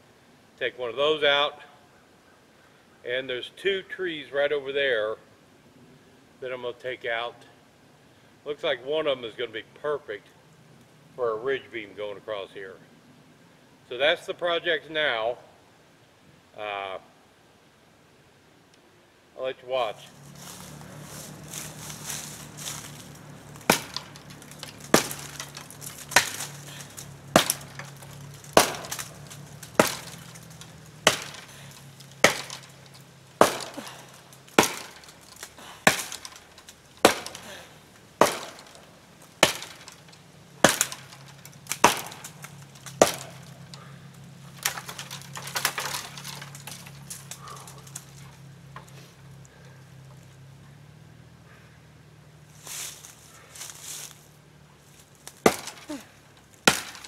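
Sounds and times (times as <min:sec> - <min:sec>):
blade chopping into tree: 0:20.5 - 0:49.0, 0:55.2 - 0:57.0.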